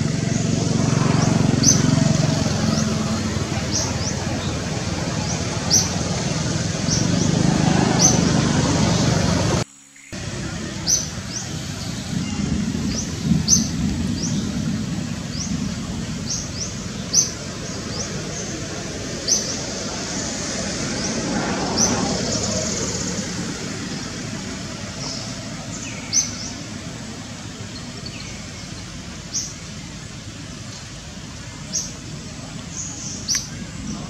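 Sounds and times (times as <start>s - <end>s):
steady background hiss: 0.0s - 34.0s
bird chirping: 25.0s - 30.0s.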